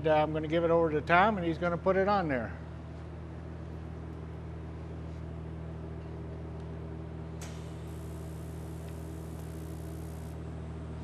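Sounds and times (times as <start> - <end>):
welding arc hissing: 7.4 - 10.4
welder humming: 7.4 - 11.0.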